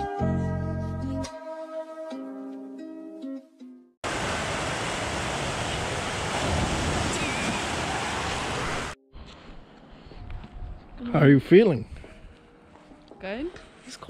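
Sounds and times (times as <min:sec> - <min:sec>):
water gushing into pool: 0:04.0 - 0:09.0.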